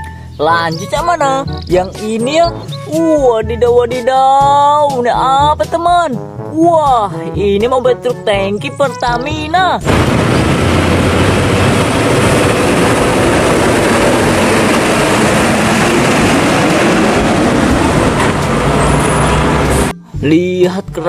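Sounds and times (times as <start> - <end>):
road noise: 0.0 - 3.0, 9.8 - 20.0
truck engine rumble: 9.8 - 19.9.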